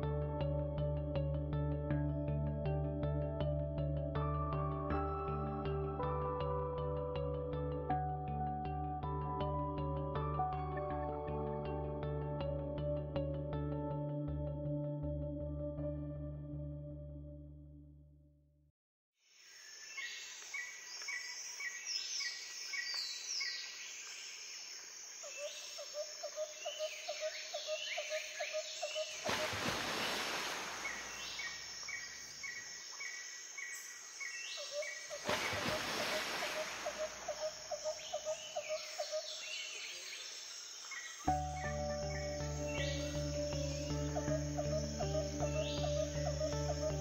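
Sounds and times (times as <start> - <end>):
birds chirping: 26.6 - 47.0.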